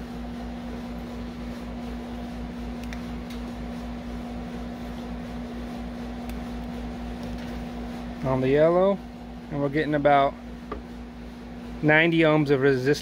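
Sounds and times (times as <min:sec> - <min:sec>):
mechanical hum with low throb: 0:00.0 - 0:13.0.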